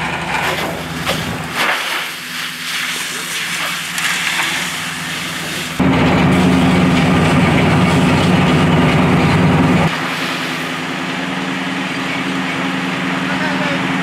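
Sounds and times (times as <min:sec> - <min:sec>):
fire engine engine running: 0:00.0 - 0:14.0
hiss: 0:01.6 - 0:05.8.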